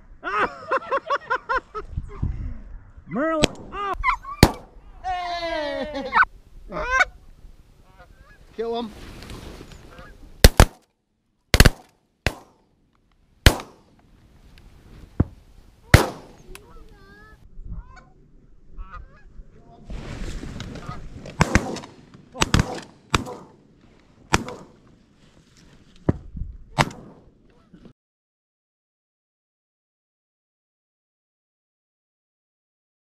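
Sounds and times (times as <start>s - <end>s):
shotgun shots: 4.4s - 4.8s, 10.4s - 10.8s, 11.5s - 12.6s, 13.4s - 13.9s, 15.9s - 16.5s, 21.4s - 23.6s, 24.3s - 24.8s, 26.8s - 27.4s.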